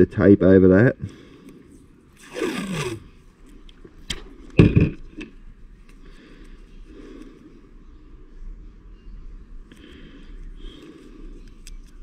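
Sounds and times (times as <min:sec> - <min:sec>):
tape ripping off roll: 0:02.2 - 0:03.2.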